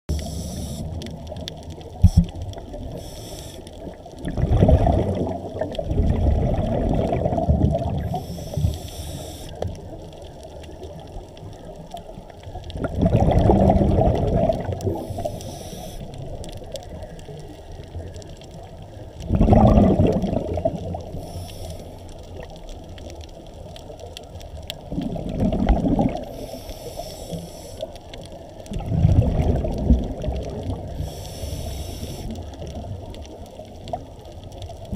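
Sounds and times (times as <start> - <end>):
underwater regulator bubbles: 0.1 - 9.8, 12.6 - 17.3, 18.6 - 22.6, 24.7 - 34.9.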